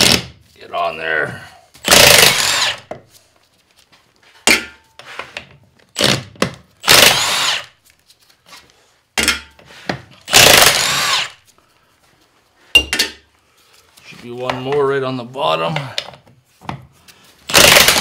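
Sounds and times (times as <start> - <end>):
impact wrench bursts: 0.0 - 0.3, 1.8 - 2.9, 6.0 - 7.7, 10.3 - 11.4, 17.5 - 18.0.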